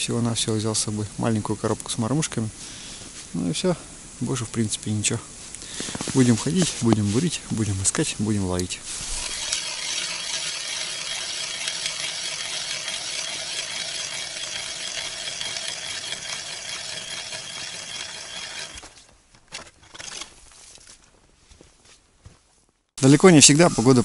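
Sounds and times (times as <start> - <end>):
ice auger grinding through ice: 9.0 - 19.0.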